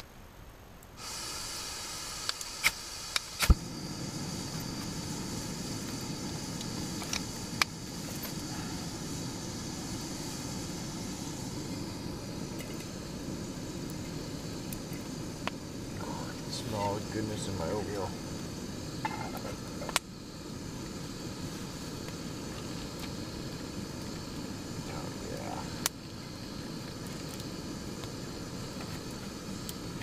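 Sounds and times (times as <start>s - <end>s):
gas burner rushing: 1.0s - 30.0s
gas hissing: 1.0s - 30.0s
igniter clicks: 2.2s - 3.7s, 5.8s - 8.4s, 13.8s - 15.6s, 19.0s - 20.1s, 26.8s - 30.0s.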